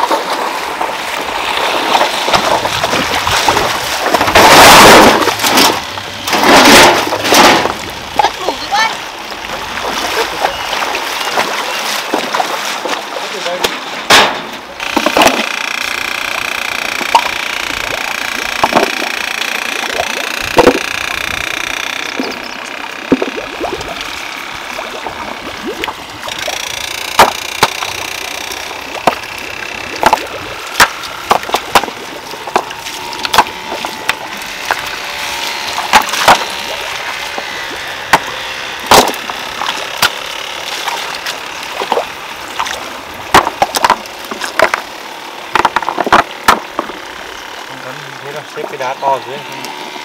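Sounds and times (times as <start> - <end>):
flowing water: 0.0 - 50.0
stones clacking and knocking: 45.6 - 46.9.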